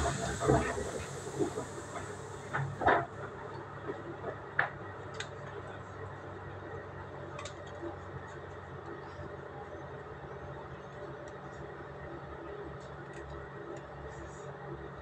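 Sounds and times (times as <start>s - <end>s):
standing train humming: 0.0s - 15.0s.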